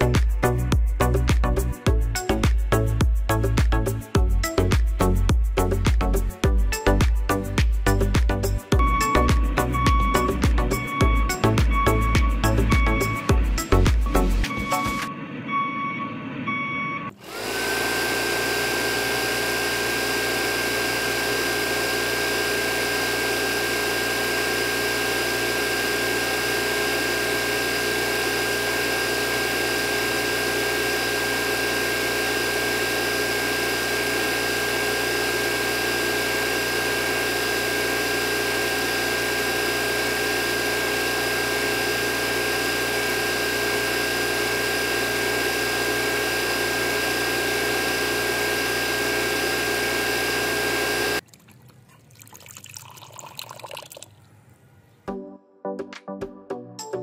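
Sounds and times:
electric water pump whine: 7.9 - 15.1, 17.1 - 51.2
water pouring into tray: 51.2 - 54.2.

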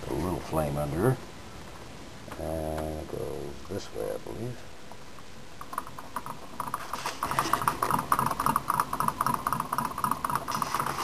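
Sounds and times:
small engine clicking rapidly: 5.6 - 11.0.

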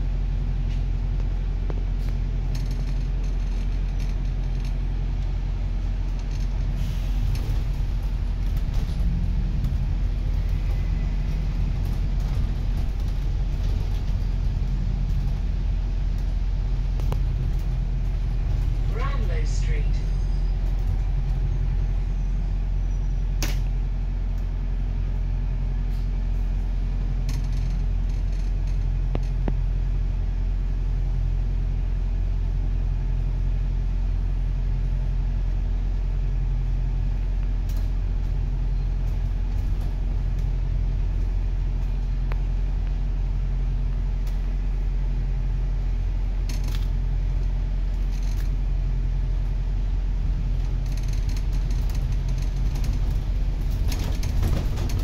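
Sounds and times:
bus engine rumble: 0.0 - 55.0
sharp clicks and rattles: 2.4 - 4.8, 27.2 - 29.6, 46.4 - 47.0, 47.9 - 48.6, 50.5 - 55.0.

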